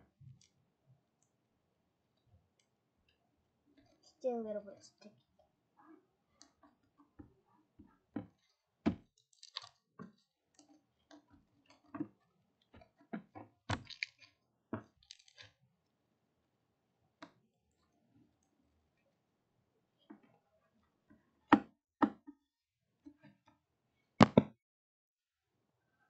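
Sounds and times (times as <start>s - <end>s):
slime squelching by hand: 8.1s - 15.6s.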